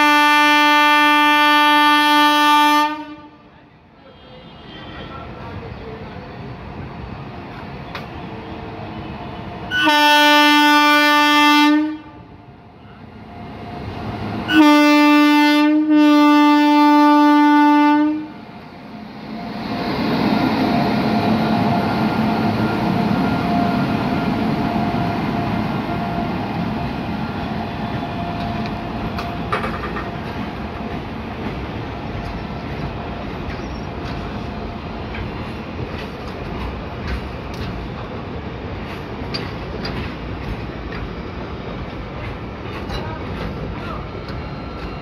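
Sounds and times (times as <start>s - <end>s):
locomotive horn blast: 0.0s - 3.4s, 9.7s - 12.3s, 14.5s - 18.4s
train wheels on rails: 4.0s - 45.0s.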